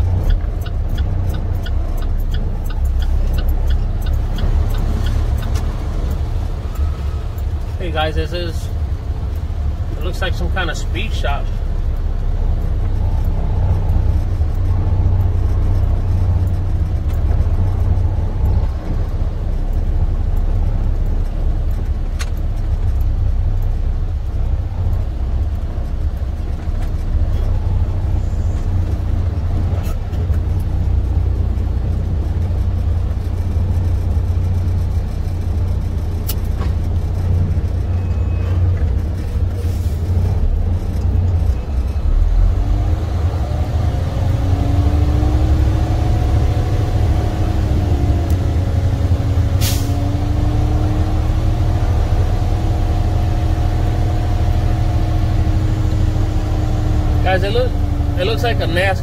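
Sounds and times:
diesel truck engine drone: 0.0 - 59.0.

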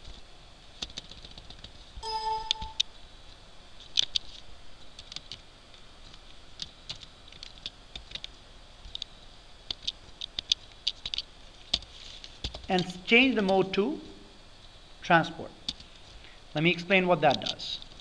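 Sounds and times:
keyboard typing: 0.8 - 2.8.

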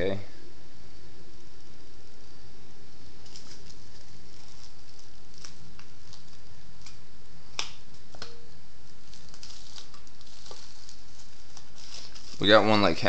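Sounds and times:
plastic wrap crinkling: 3.0 - 7.0, 7.6 - 13.0.

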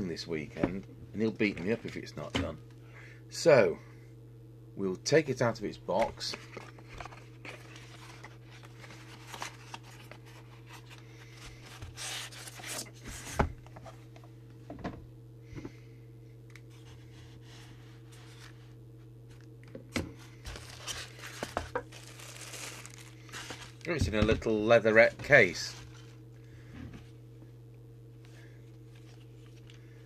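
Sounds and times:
steady low hum: 0.0 - 30.0
cardboard packaging rustling: 6.0 - 14.0, 16.7 - 18.6, 20.4 - 26.2.

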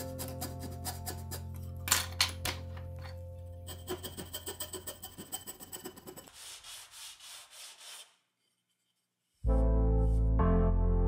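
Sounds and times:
hand file rubbing on wood: 3.7 - 9.5.

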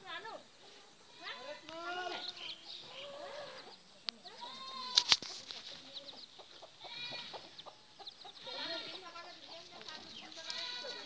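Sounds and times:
hen clucking: 0.6 - 11.0
chicks peeping: 5.4 - 11.0.

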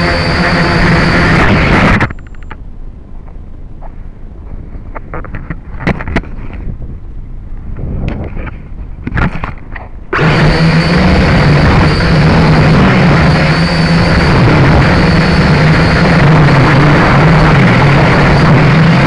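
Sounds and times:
drone propellers whirring: 0.0 - 2.4, 7.8 - 19.0.

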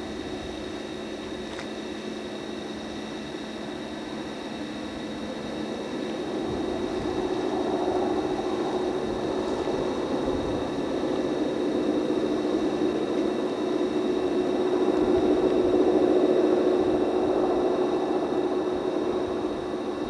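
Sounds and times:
distant diesel locomotive drone: 0.0 - 20.0.

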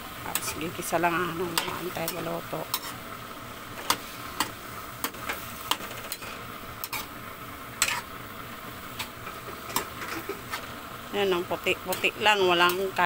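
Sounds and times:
food sizzling: 0.0 - 13.0
utensil scraping and clinking a wok: 0.3 - 3.0, 3.7 - 7.2, 7.8 - 8.1, 8.8 - 10.8, 11.7 - 13.0.

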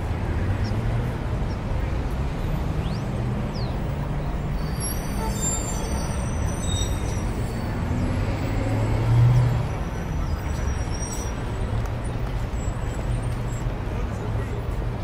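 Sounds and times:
road traffic rumbling: 0.0 - 15.0
vehicle engine passing by: 7.3 - 9.8.

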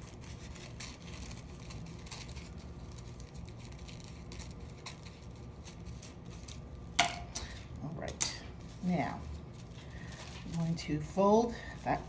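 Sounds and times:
scissors snipping tissue paper: 0.0 - 8.4.

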